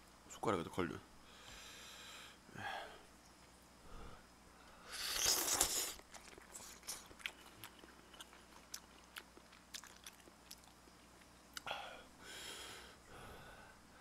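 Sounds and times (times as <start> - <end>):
person slurping noodles: 4.9 - 6.0
wet chewing: 5.0 - 11.7.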